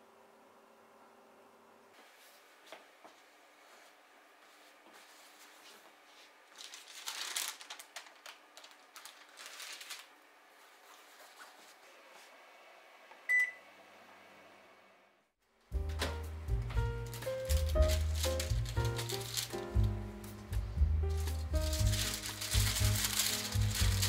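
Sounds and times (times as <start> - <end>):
rustling and crackling: 4.7 - 10.1, 17.1 - 19.8, 21.6 - 24.0.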